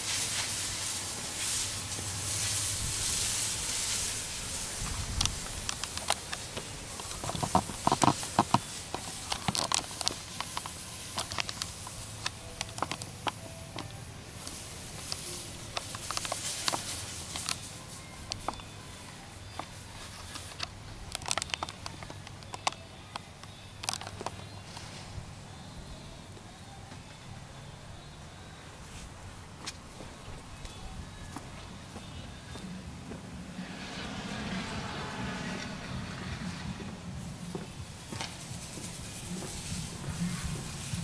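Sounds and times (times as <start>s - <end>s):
spray spattering on roof tiles: 0.0s - 13.4s, 14.3s - 19.0s, 38.1s - 41.0s
pressure washer humming: 0.0s - 22.3s.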